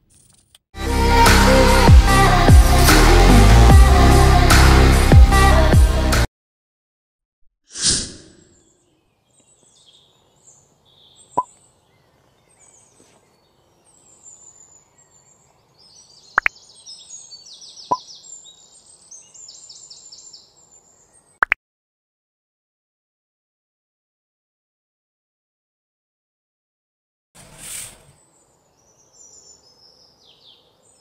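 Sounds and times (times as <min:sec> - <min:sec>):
birdsong chirps and trills: 0:08.3 - 0:21.5, 0:27.8 - 0:31.0.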